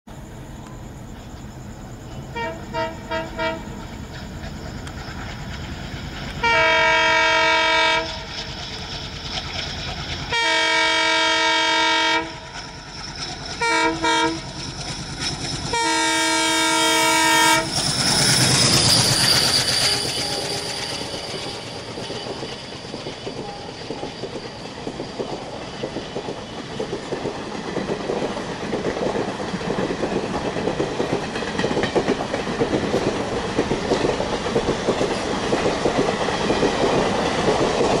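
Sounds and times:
train wheels clacking on rails: 0.2s - 38.0s
locomotive horn: 2.3s - 3.8s, 6.4s - 8.3s, 10.3s - 12.5s, 13.6s - 14.4s, 15.7s - 17.7s.

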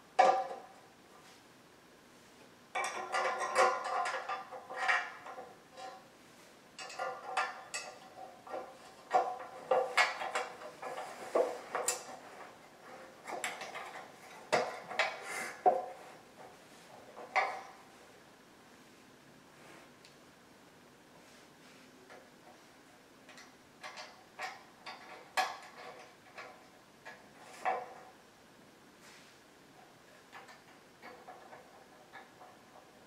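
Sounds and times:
metal bed rails clanking: 0.2s - 0.8s, 2.7s - 6.0s, 6.8s - 17.9s, 23.3s - 28.2s, 30.2s - 33.0s.

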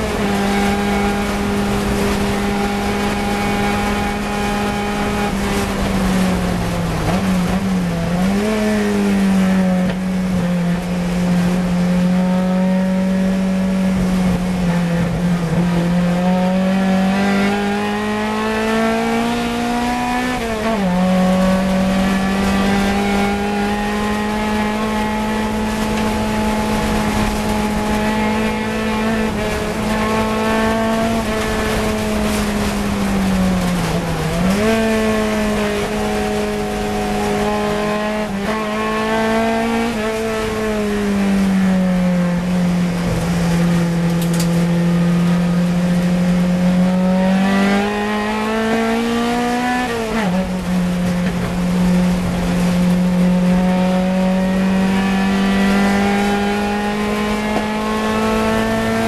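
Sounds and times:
racing car engine at high revs: 0.0s - 59.0s.

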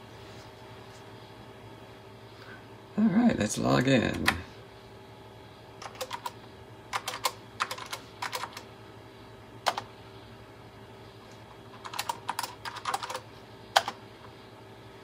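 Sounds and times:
keyboard keystrokes: 5.8s - 8.6s, 11.8s - 13.2s, 13.8s - 14.0s.

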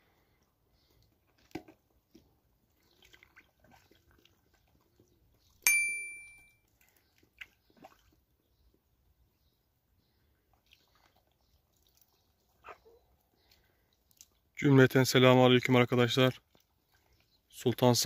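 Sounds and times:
bell-like ding: 5.7s - 6.6s.

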